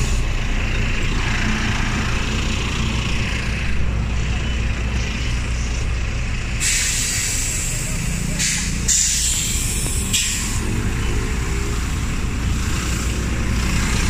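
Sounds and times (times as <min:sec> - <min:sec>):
bus engine idling: 0:00.0 - 0:14.0
loud hiss of released air: 0:06.6 - 0:10.7.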